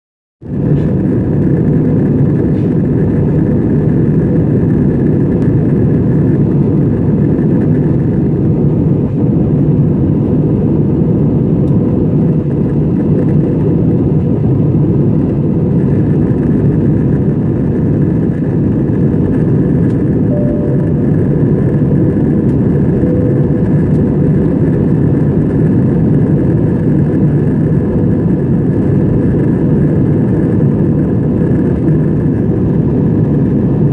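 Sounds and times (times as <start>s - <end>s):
jet airliner cabin noise: 0.4s - 33.9s
faint high hum: 20.2s - 24.8s.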